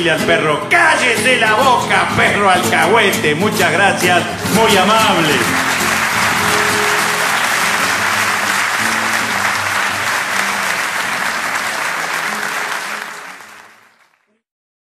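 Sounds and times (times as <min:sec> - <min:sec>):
music playing: 0:00.0 - 0:14.1
audience applauding: 0:04.4 - 0:14.4.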